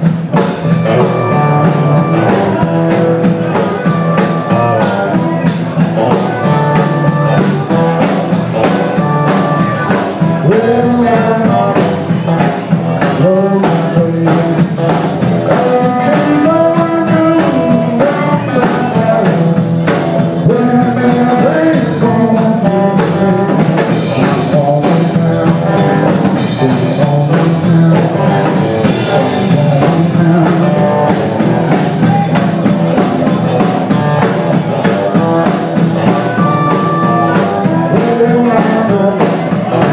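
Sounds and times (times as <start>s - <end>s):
blues-rock band playing: 0.0s - 39.9s
harmonica wailing: 0.5s - 11.0s, 30.8s - 38.8s.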